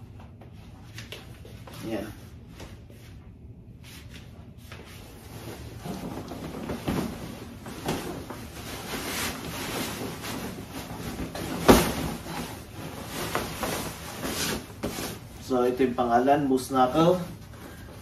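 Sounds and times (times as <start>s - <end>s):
fabric garment bag rustling: 5.0s - 15.4s.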